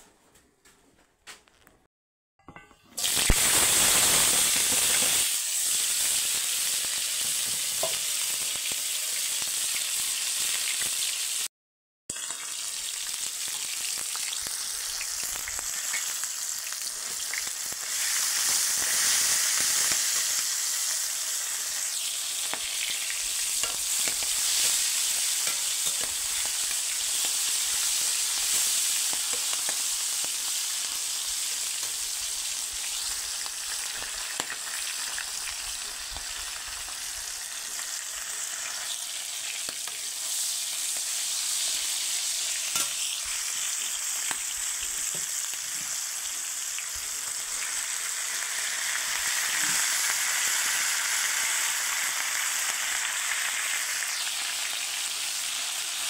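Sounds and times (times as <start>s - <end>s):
vegetables sizzling in oil: 2.9s - 11.5s, 12.1s - 56.0s
spatula scraping wok: 22.6s - 30.1s.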